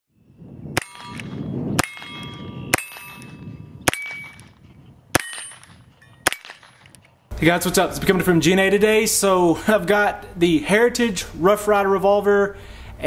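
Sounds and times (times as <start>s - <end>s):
bullet ringing steel target: 0.8s - 7.0s
revolver gunshots: 0.8s - 7.0s.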